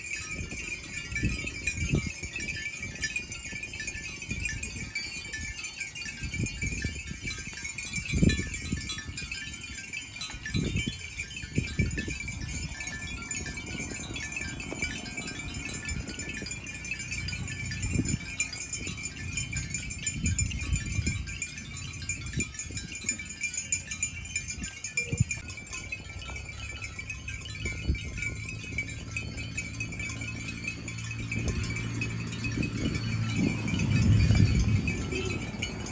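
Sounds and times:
bells clinking and ringing: 0:00.0 - 0:35.9
low rumbles: 0:00.1 - 0:35.9.

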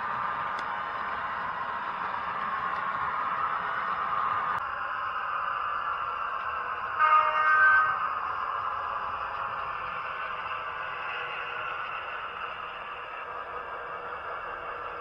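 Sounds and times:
model train running noise: 0:00.0 - 0:15.0
model locomotive horn blast: 0:07.0 - 0:08.1.

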